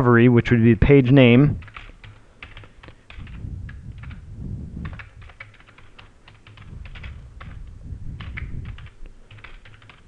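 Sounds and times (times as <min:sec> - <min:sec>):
low rumble: 0:03.2 - 0:05.2
keyboard key clicks: 0:08.2 - 0:10.0.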